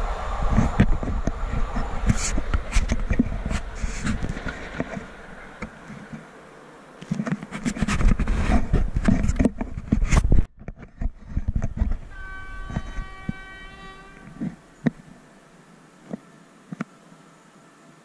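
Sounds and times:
wind buffeting microphone: 0.0 - 6.2, 7.5 - 15.2
train horn: 11.7 - 15.4.

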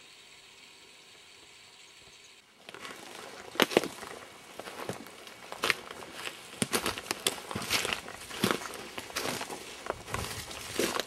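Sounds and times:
footsteps crunching through brush: 2.6 - 11.0
twigs snapping: 2.7 - 11.0.

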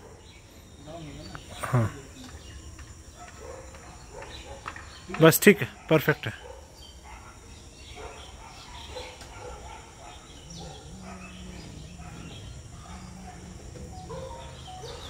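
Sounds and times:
steady insect buzz: 0.0 - 15.0
faint bird chirps: 6.4 - 15.0.

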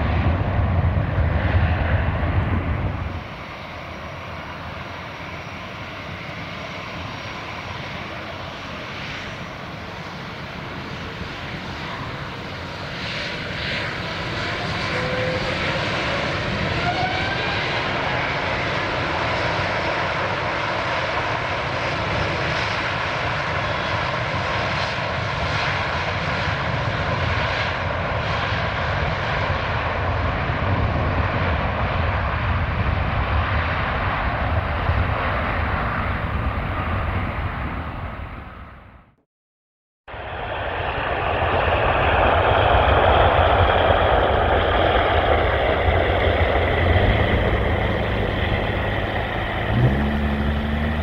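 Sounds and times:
jet engines spooling up: 0.0 - 21.1, 40.1 - 51.0
jet engine roar with deep rumble: 0.0 - 39.2, 40.1 - 51.0.

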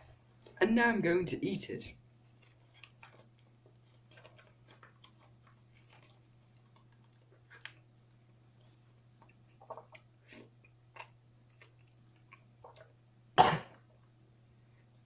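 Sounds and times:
steady low hum: 0.0 - 15.0
person chewing with mouth clicks: 2.4 - 13.0.

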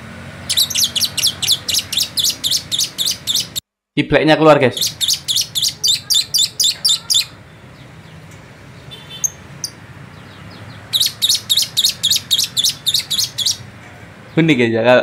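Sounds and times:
bird high sharp chirps: 0.5 - 3.6, 4.7 - 7.4, 8.9 - 13.7.

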